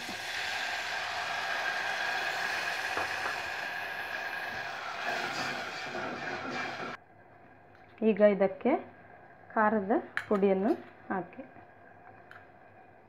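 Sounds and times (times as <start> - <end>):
sauce sizzling in hot oil: 0.0 - 7.0.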